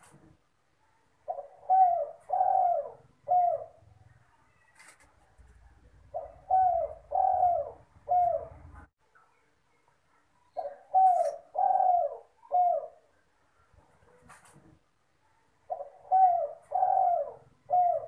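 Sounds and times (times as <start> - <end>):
dove cooing: 1.2 - 5.0, 5.6 - 8.9, 10.6 - 13.2, 15.7 - 18.0.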